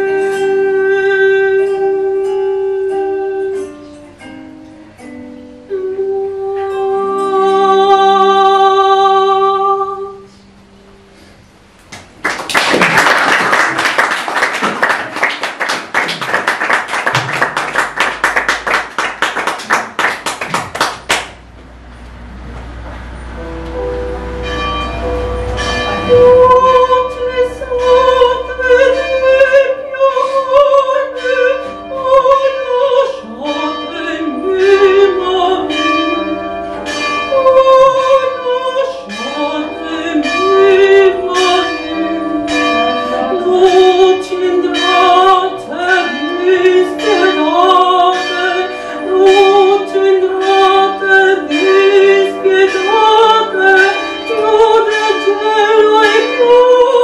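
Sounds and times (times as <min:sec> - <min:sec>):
instrumental chords: 0:20.7 - 0:32.2
countertenor singing: 0:26.0 - 0:36.4.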